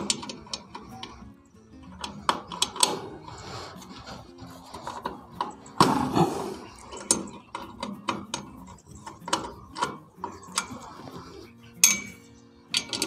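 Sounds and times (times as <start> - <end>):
wrench metallic clicks: 0.0 - 4.1, 6.7 - 13.0.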